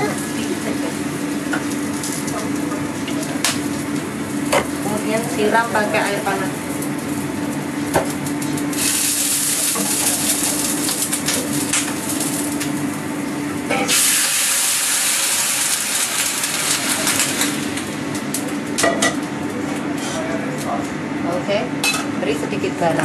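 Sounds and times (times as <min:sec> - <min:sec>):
water hissing in hot oil: 0:08.4 - 0:18.5
steady low hum: 0:15.8 - 0:23.0.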